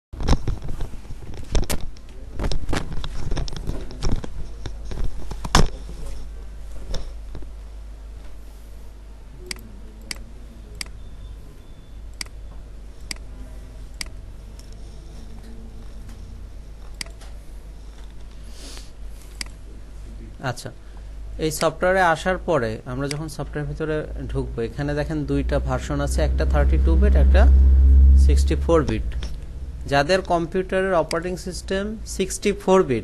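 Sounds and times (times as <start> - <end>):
low steady hum: 0.2 - 33.0
computer mouse clicks: 13.0 - 13.3, 16.8 - 17.4.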